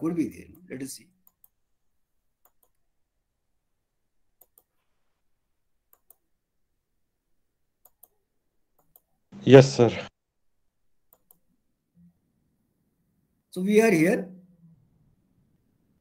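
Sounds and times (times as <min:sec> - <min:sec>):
computer mouse clicks: 0:00.5 - 0:01.6, 0:02.4 - 0:02.8, 0:04.4 - 0:04.9, 0:05.9 - 0:06.3, 0:07.8 - 0:09.1, 0:11.1 - 0:11.5.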